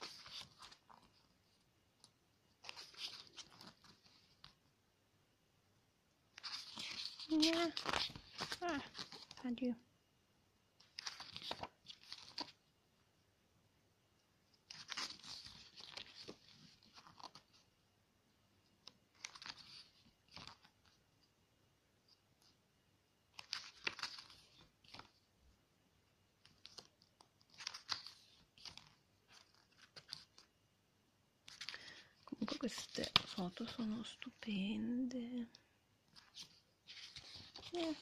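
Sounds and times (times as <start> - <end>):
pages turning rustling: 0.0 - 4.7, 6.3 - 9.6, 10.8 - 12.7, 14.5 - 17.8, 18.6 - 21.2, 23.3 - 25.3, 26.3 - 30.6, 31.4 - 38.0.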